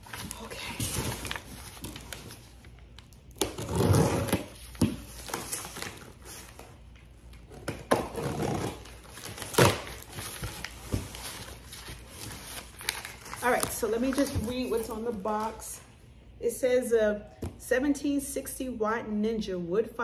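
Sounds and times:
packing material rustling: 0.0s - 6.8s, 7.9s - 15.6s.

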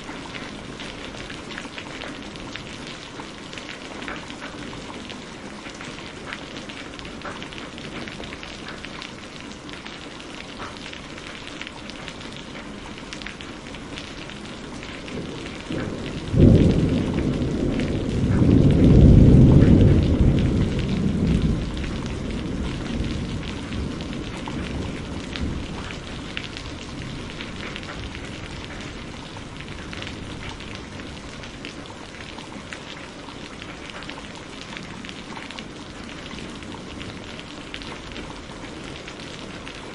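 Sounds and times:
steady rain falling: 0.0s - 39.9s
thunderclap with deep rumble: 14.2s - 32.6s.

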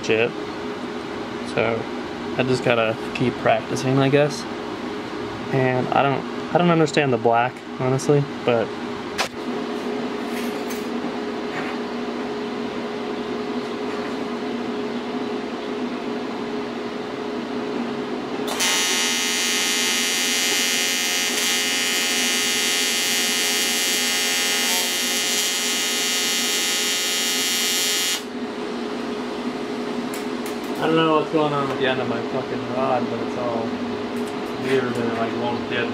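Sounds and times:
welding arc buzzing: 18.5s - 28.3s.

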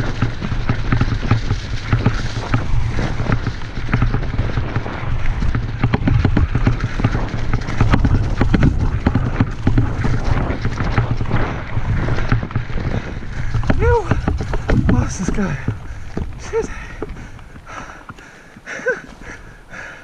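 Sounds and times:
bike knocking and rattling: 0.0s - 20.0s
bike tyres rumbling on ground: 0.0s - 20.0s.

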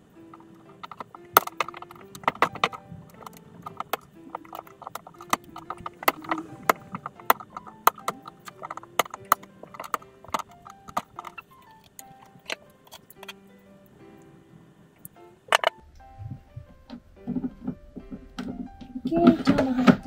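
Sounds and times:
plastic parts clicking: 0.0s - 13.4s, 15.5s - 15.8s
soft background music: 0.0s - 20.0s.

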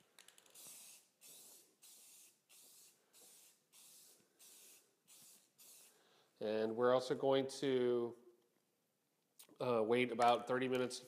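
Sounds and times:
aerosol spray can hissing: 0.4s - 6.0s.

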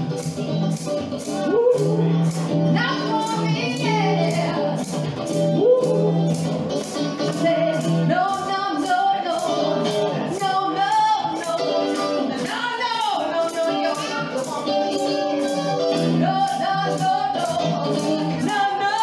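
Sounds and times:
electric guitar: 0.0s - 19.0s
ticking beat: 0.0s - 19.0s
women singing: 2.8s - 4.7s, 7.3s - 14.3s, 16.2s - 19.0s.

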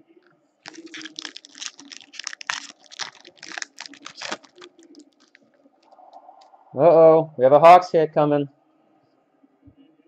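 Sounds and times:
foil wrapper crinkling and tearing: 0.6s - 5.4s.

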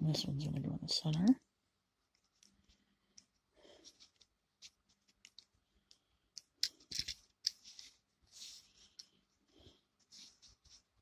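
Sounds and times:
plastic bricks clicking: 6.4s - 7.6s.

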